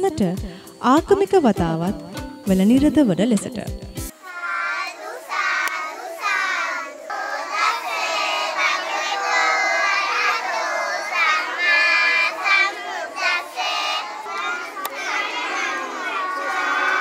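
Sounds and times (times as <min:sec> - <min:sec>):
children chanting in unison: 0:04.1 - 0:17.0.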